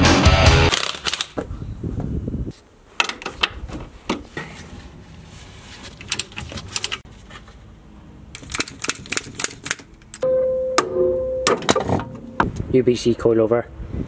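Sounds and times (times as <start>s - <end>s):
rustle of handling: 4.2s - 7.7s.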